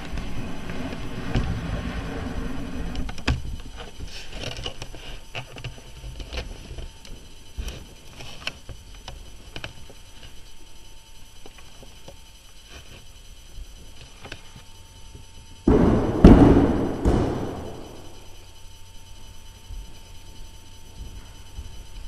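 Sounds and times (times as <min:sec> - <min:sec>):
body thuds on studio floor: 0:15.7 - 0:18.2.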